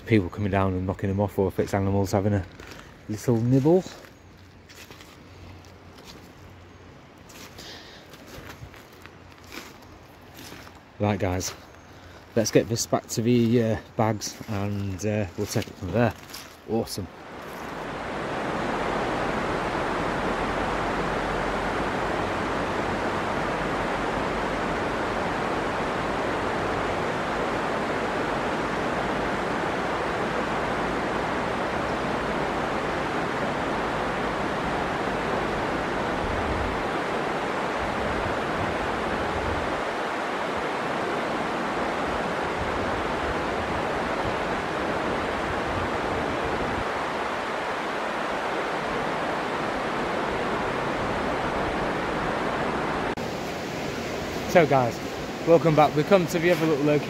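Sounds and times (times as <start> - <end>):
river water rushing: 2.5 - 57.0.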